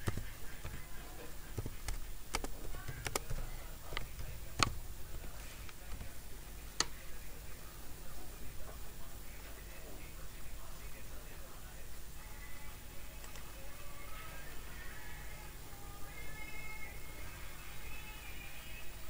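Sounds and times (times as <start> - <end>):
faint room hum: 0.0 - 19.0
computer clicks: 1.5 - 4.8.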